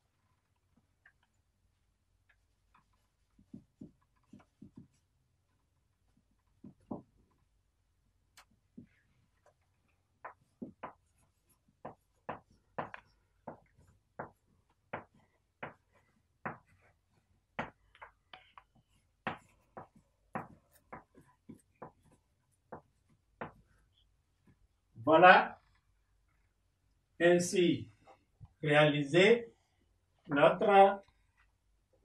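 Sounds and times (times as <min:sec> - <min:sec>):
chalk tapping and scraping on blackboard: 0:02.2 - 0:07.5, 0:08.4 - 0:24.7.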